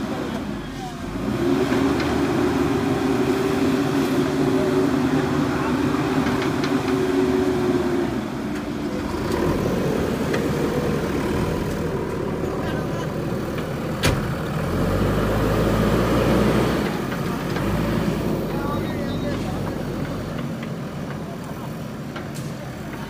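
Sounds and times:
diesel engine running: 0:00.0 - 0:23.0.

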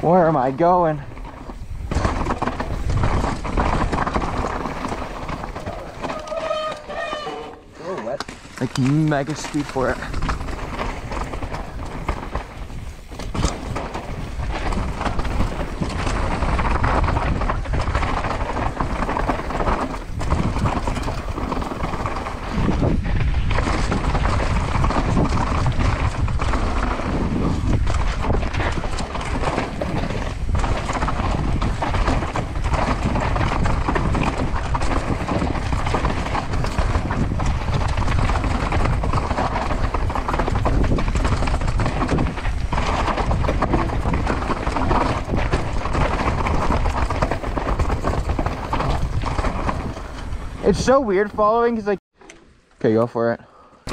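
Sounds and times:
tyres rushing on dirt and rock: 0:00.0 - 0:52.0
chain and frame knocks and rattles: 0:08.2 - 0:50.5.

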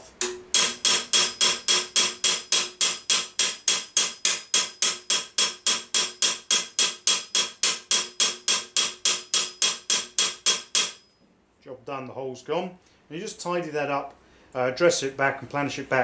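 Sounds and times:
hammer tapping sheet metal: 0:00.0 - 0:11.2.

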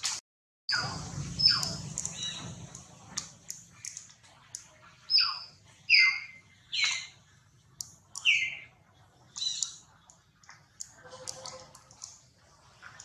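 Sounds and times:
faint clicks: 0:09.3 - 0:13.0.

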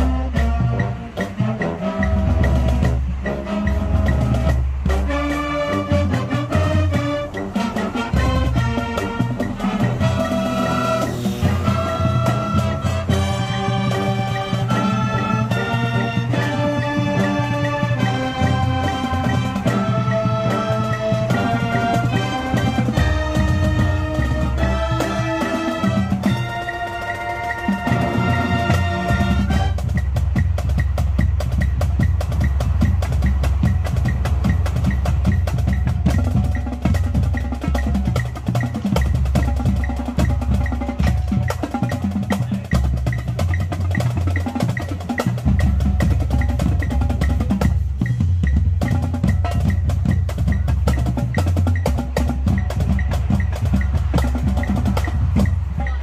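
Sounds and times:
wind band chord: 0:00.0 - 0:37.6
drums and snare playing: 0:00.0 - 0:56.0.

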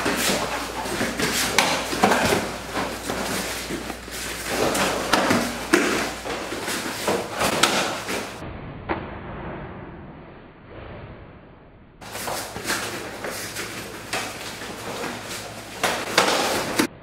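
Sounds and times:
bare feet thudding on floor mat: 0:00.0 - 0:08.4
sharp slaps and thumps: 0:00.0 - 0:09.2, 0:12.0 - 0:16.9.

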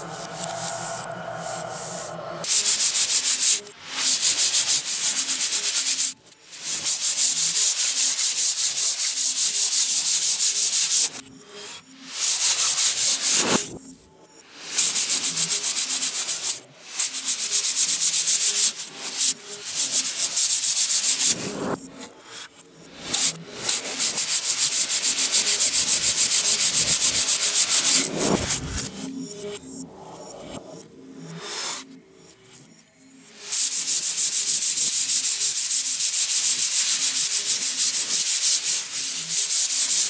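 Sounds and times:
hand sanding plywood: 0:14.9 - 0:21.4, 0:23.1 - 0:28.9, 0:33.5 - 0:40.0.

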